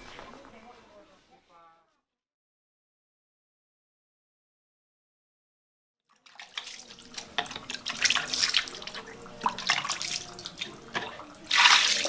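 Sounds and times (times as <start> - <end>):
water splashing and dripping: 6.1 - 12.0.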